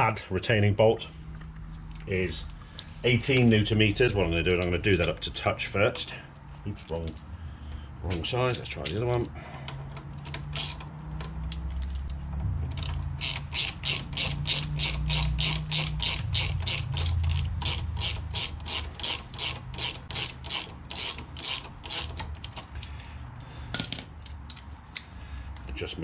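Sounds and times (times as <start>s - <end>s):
socket ratchet clicking: 10.0s - 23.1s.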